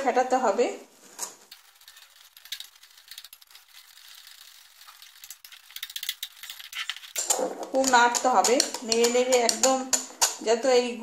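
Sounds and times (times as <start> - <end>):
whisk beating batter in glass bowl: 1.5 - 9.6.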